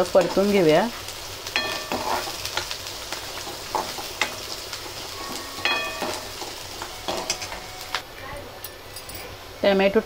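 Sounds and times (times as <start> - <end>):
onion sizzling in hot oil: 0.0 - 8.1
steel spoon scraping a pan: 1.5 - 7.7.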